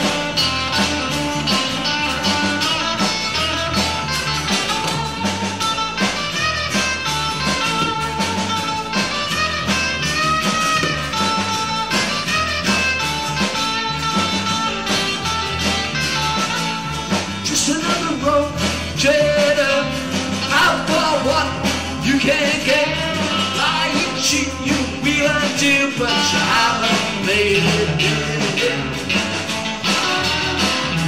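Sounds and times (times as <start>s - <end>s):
acoustic guitars strummed: 0.0s - 31.0s
bass line: 0.0s - 31.0s
person singing: 17.4s - 29.3s.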